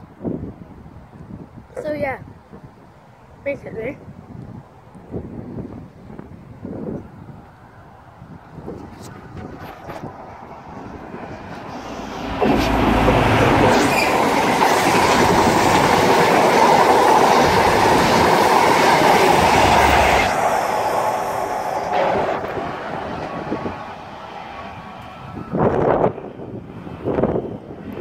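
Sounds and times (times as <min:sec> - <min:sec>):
diesel train passing at speed: 0:04.0 - 0:28.0
diesel engine roar: 0:10.8 - 0:15.9.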